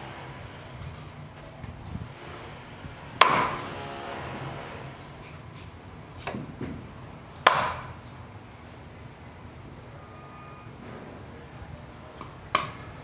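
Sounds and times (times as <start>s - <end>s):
cleaver chopping on wooden block: 3.2s - 3.7s, 7.5s - 7.9s.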